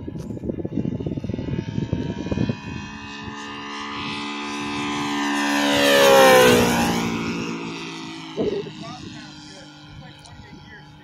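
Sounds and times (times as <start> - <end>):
model plane engine flying by: 0.0 - 11.0.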